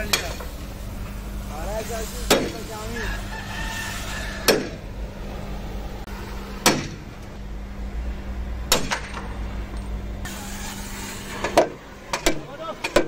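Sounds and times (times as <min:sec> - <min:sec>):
sledgehammer striking steel: 0:04.5 - 0:04.8, 0:06.6 - 0:07.0, 0:08.7 - 0:09.3.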